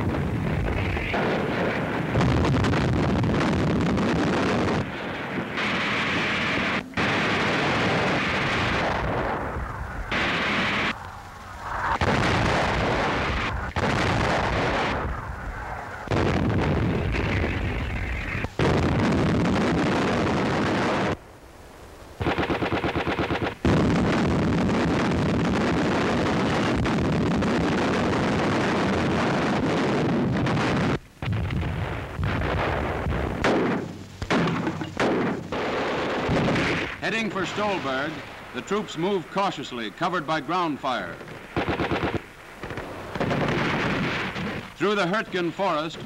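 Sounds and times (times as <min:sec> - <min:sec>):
artillery gun reports: 0:04.2 - 0:09.5, 0:32.2 - 0:46.0
automatic gunfire burst: 0:05.6 - 0:09.2, 0:22.2 - 0:24.4, 0:33.4 - 0:38.0, 0:41.5 - 0:44.7.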